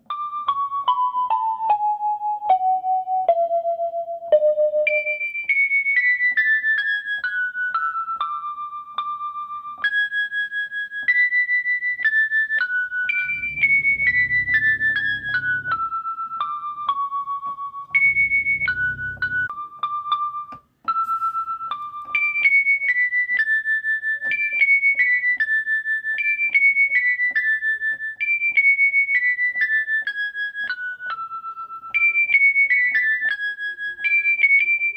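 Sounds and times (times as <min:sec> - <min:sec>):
keyboard melody: 0:00.0 - 0:25.9
low rumble: 0:13.1 - 0:16.1, 0:17.9 - 0:19.5.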